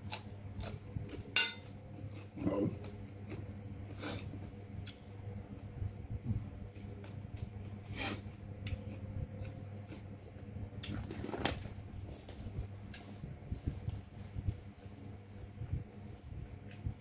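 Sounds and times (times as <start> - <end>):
person chewing: 0.0 - 1.3
steady low hum: 0.0 - 17.0.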